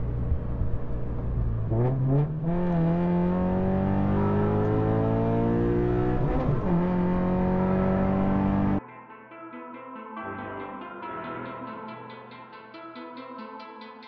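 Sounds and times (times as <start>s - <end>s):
car engine revving: 0.0s - 8.8s
soft background music: 6.7s - 14.0s.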